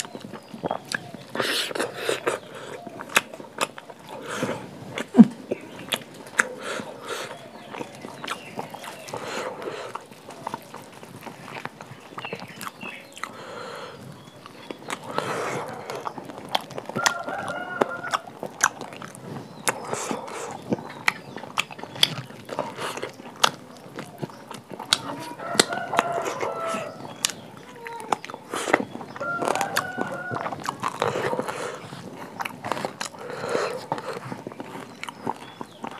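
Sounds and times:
wet chewing and smacking: 0.0s - 35.9s
rooster crowing: 17.0s - 18.3s, 25.0s - 27.1s, 29.2s - 31.4s.

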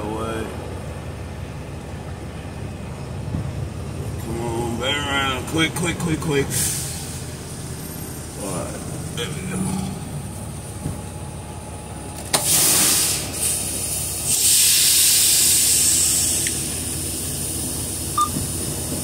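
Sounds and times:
low steady rumble: 0.0s - 19.0s
air brake hiss: 6.5s - 7.2s, 12.4s - 18.1s.

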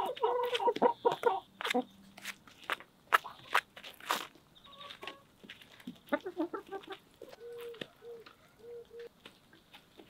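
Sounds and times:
hens clucking: 0.0s - 2.0s, 4.6s - 10.0s
beaks pecking on dirt: 0.0s - 10.0s.

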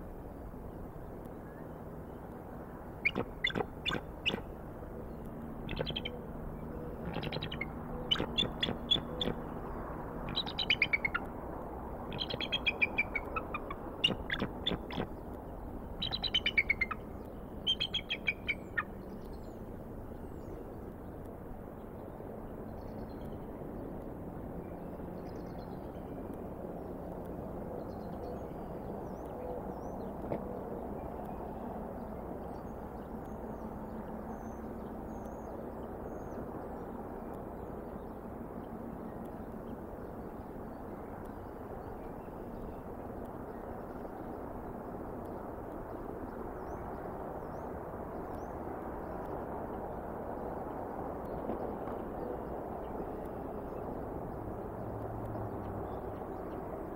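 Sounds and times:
faint high bird chirps: 3.1s - 4.5s, 5.7s - 6.2s, 7.0s - 9.4s, 10.3s - 11.3s, 12.1s - 15.0s, 16.0s - 17.0s, 17.6s - 18.9s.

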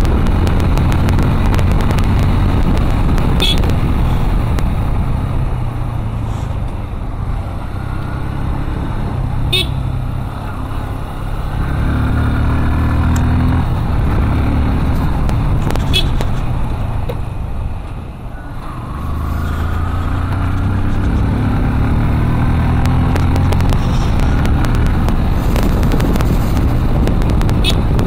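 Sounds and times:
road and wind rumble: 0.0s - 28.0s
vehicle engine running: 7.6s - 17.9s, 18.6s - 28.0s.

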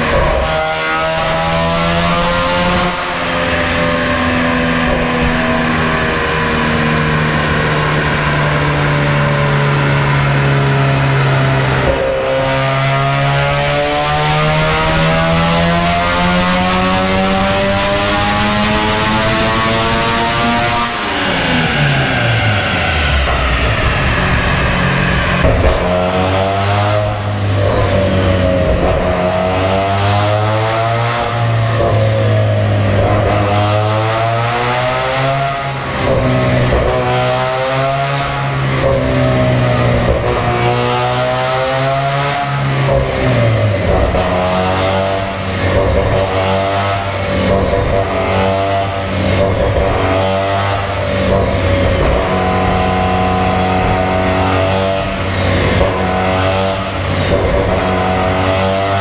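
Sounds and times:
car engine revving: 0.0s - 59.0s
steady low drone: 0.0s - 59.0s.

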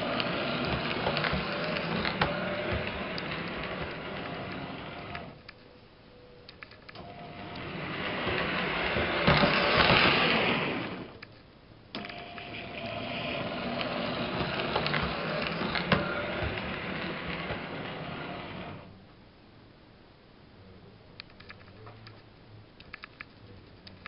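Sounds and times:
model train motor whirring: 0.0s - 5.4s, 7.1s - 11.2s, 12.0s - 18.9s.

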